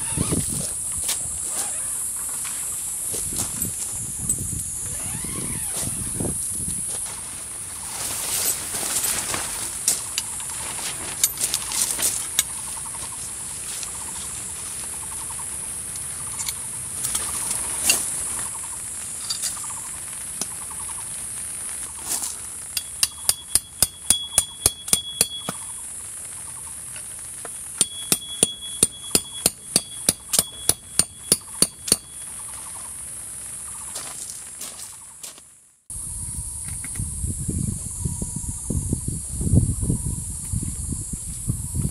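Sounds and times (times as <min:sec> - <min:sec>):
steady high hiss: 0:00.0 - 0:41.9
thin high tone: 0:27.8 - 0:32.4.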